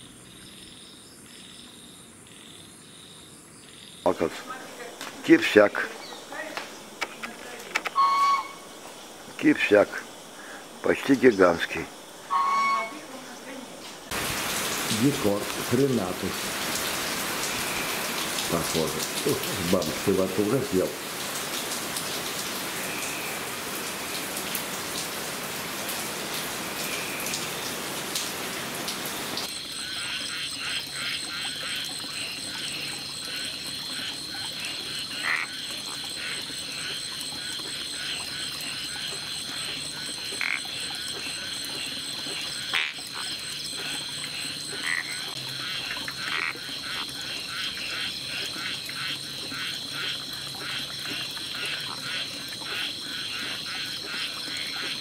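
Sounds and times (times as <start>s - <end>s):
frogs calling: 0.0s - 55.0s
steady rain falling: 4.1s - 55.0s
high-pitched drone: 8.0s - 8.6s, 12.3s - 13.1s.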